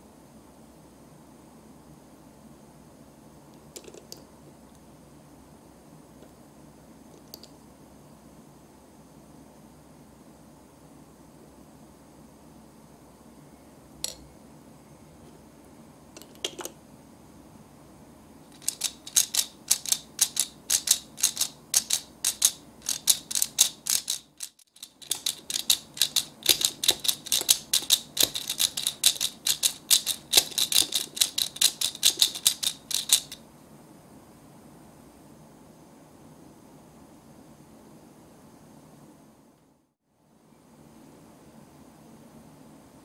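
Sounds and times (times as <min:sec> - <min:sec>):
toy hand mixer clicking rapidly: 0:18.5 - 0:33.4.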